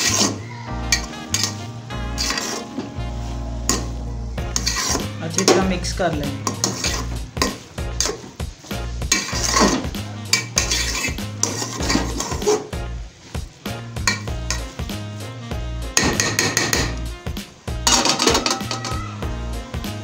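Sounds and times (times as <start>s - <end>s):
metal spoon scraping a pot: 0.0s - 2.7s, 4.5s - 5.6s, 6.4s - 8.3s, 9.1s - 12.8s, 14.1s - 14.8s, 16.0s - 17.0s, 17.9s - 19.0s.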